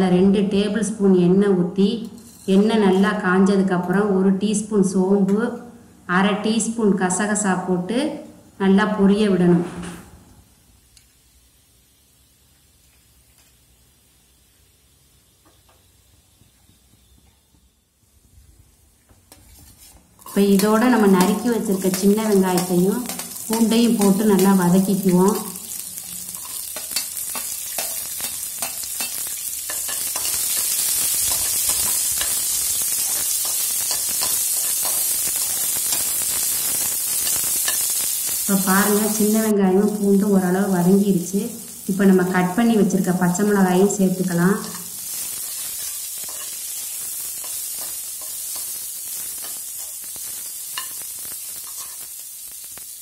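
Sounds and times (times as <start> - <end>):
shallots sizzling in hot oil: 1.9 - 3.7, 10.4 - 53.0
spatula scraping a pan: 2.1 - 3.0, 19.3 - 21.3, 25.6 - 38.0, 44.7 - 50.0, 51.6 - 52.1
ladle scraping pan: 19.3 - 20.4.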